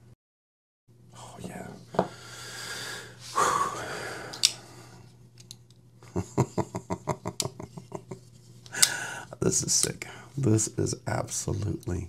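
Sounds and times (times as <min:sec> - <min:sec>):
breathy exhale: 0:02.0 - 0:05.0, 0:08.7 - 0:09.3
folding knife clicks: 0:04.3 - 0:04.6, 0:08.7 - 0:09.0.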